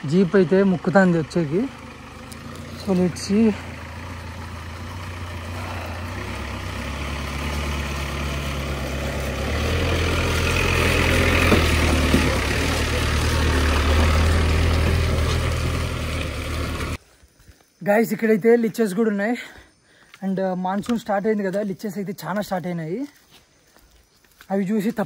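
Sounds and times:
engine straining: 0.0 - 17.0.

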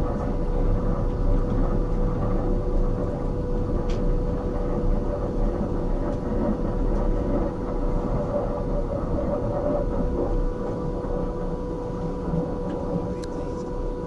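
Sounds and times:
railway carriage rumbling: 0.0 - 14.0.

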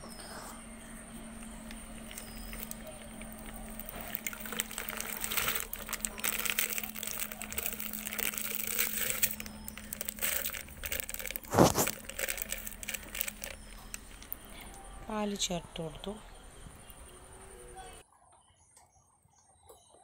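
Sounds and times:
milk pouring into jar: 1.2 - 14.7
plastic packet crinkling: 1.3 - 14.8.

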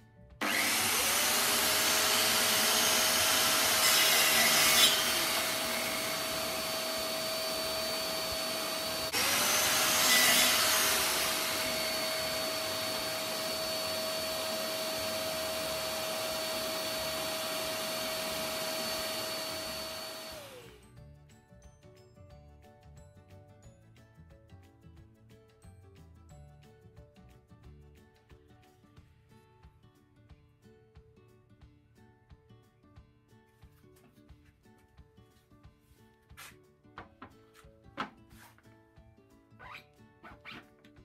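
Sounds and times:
dust extractor rushing: 0.4 - 4.3, 4.9 - 20.7
saw blade rasping through wood: 0.4 - 20.6
circular saw motor running: 4.9 - 20.7.

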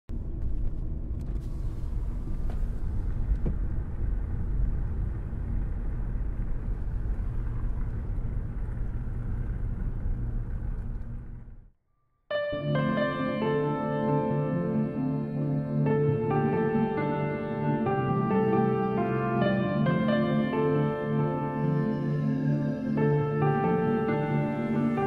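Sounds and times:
deep rumbling: 0.1 - 11.8.

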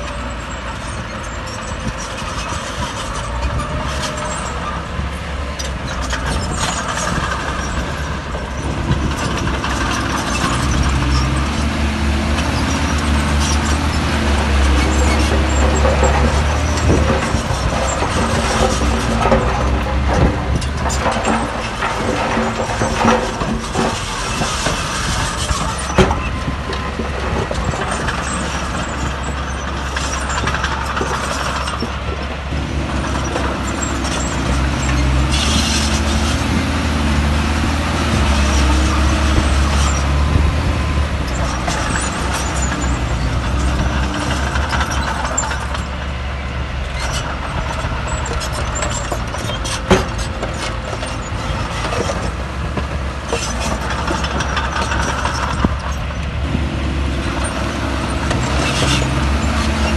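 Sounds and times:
heavy diesel machinery rumbling: 0.0 - 59.9.

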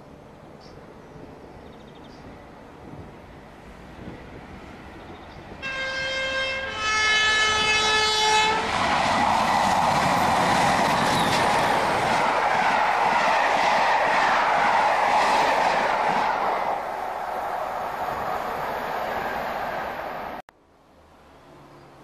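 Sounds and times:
train passing with wheel noise: 0.0 - 22.0
two-tone locomotive horn: 5.6 - 8.7.

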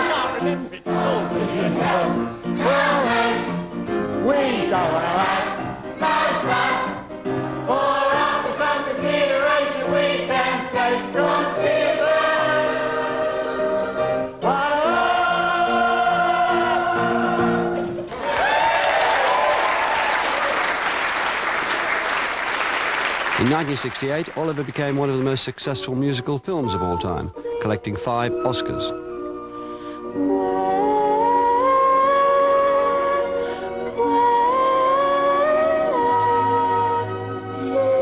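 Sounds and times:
children and adults singing: 0.0 - 3.6, 4.2 - 18.0
applause: 18.1 - 25.6.

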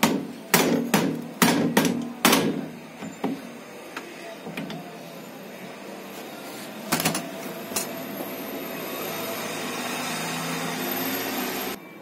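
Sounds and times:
steady machine noise: 3.6 - 12.0.

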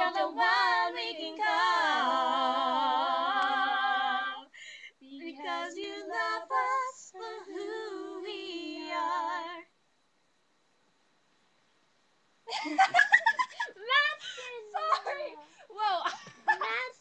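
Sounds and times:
girls singing unaccompanied: 0.0 - 9.7.

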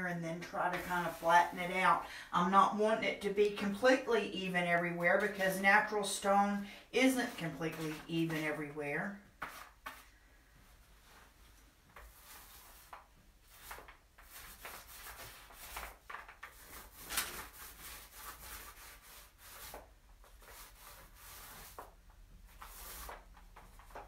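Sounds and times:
paint roller rubbing strokes: 0.4 - 2.0, 7.0 - 8.8, 11.0 - 24.0.

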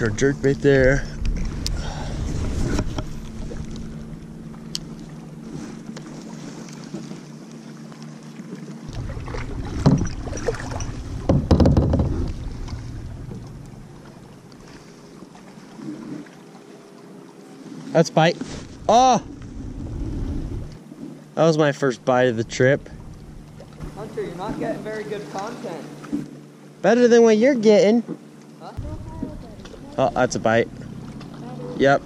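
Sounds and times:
water moving around kayak: 0.0 - 32.0
wind on microphone: 0.8 - 4.0, 18.6 - 20.8.

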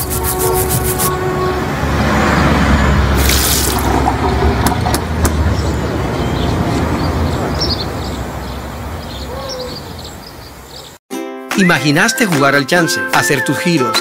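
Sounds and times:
low traffic rumble: 0.0 - 11.0.

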